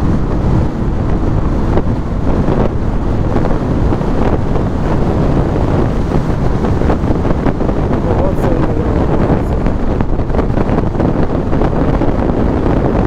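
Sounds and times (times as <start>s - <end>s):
vehicle rumble on road: 0.0s - 13.0s
wind buffeting microphone: 0.0s - 13.0s.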